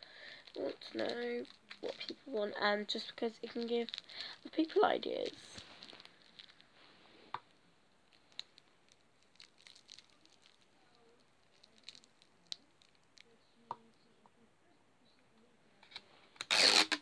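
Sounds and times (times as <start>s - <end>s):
small clicks and rustles of handling: 8.1s - 13.3s.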